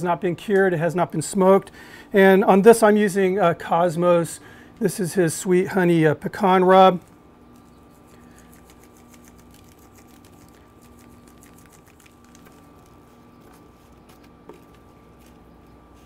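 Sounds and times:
steady low hum: 0.0 - 16.0
rub sprinkling from shaker: 7.6 - 16.0.

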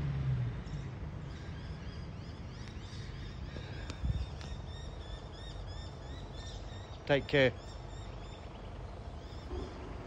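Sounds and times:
small birds chirping: 0.5 - 10.0.

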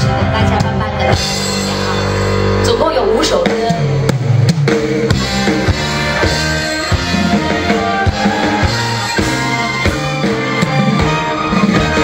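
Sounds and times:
drum kit beating: 0.0 - 12.0
live pop band playing: 0.0 - 12.0.

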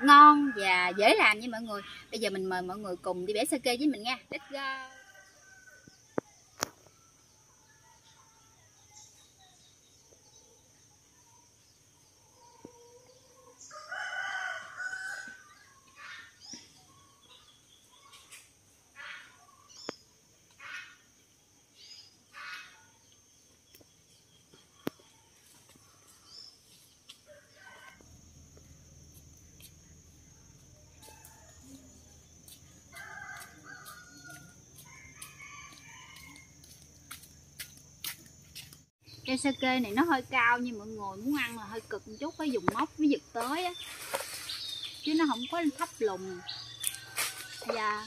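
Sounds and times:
rooster crowing: 12.8 - 15.6, 27.3 - 28.1, 30.8 - 36.8, 46.2 - 48.0
steady high-pitched hiss: 17.2 - 48.0.

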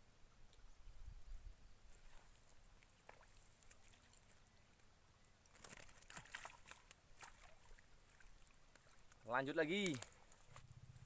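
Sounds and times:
water splashing and dripping: 2.1 - 10.6.

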